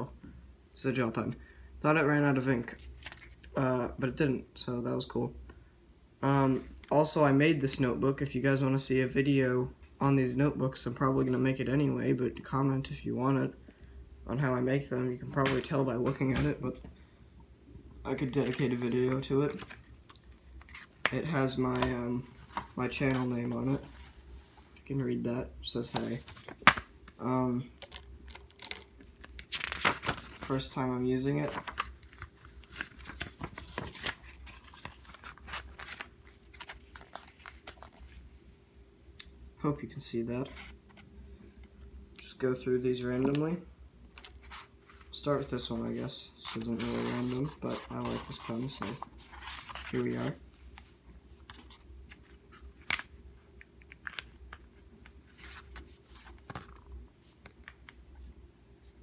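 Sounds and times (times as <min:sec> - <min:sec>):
paper pages rustling and crinkling: 0:02.7 - 0:03.4, 0:18.2 - 0:19.9, 0:20.6 - 0:24.8, 0:25.8 - 0:26.9, 0:27.8 - 0:38.2, 0:44.2 - 0:53.0, 0:55.2 - 0:57.8.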